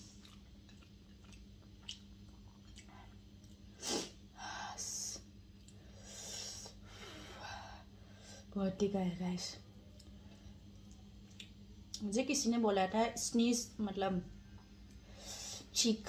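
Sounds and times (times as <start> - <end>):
person chewing: 0.0 - 3.7, 10.8 - 11.6
steady low hum: 0.0 - 16.0.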